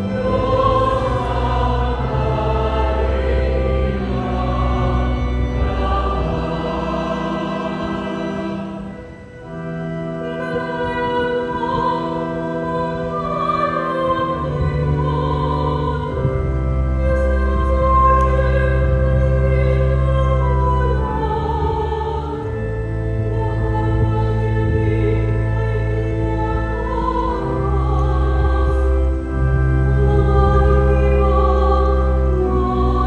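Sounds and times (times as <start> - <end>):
low accompaniment chords: 0.0 - 33.0
woman singing through microphone: 10.2 - 33.0.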